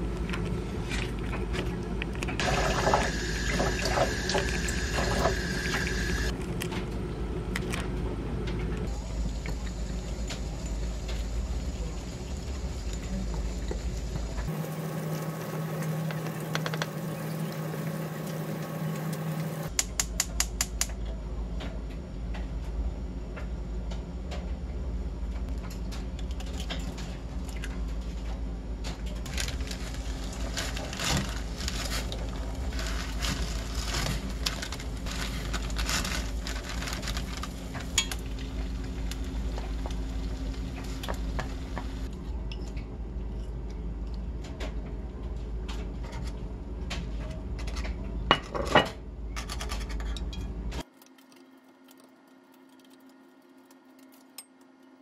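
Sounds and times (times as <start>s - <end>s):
steady low hum: 0.0s - 50.9s
water boiling in a pan: 2.4s - 6.3s, 8.8s - 19.7s
eggs frying: 9.2s - 19.7s.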